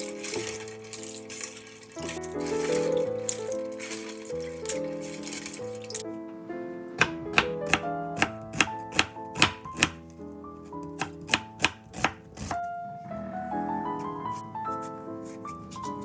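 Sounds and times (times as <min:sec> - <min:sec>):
background music: 0:00.0 - 0:16.0
knife chopping on wooden board: 0:07.0 - 0:10.0, 0:11.0 - 0:12.5.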